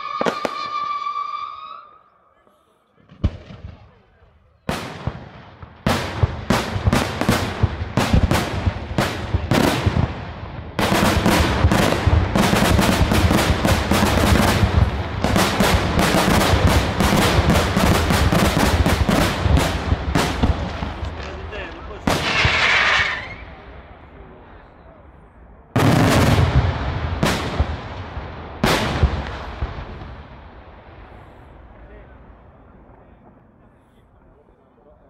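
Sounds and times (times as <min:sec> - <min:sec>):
fireworks bursting with loud bangs: 0:00.0 - 0:02.0, 0:03.0 - 0:24.7, 0:25.7 - 0:34.3.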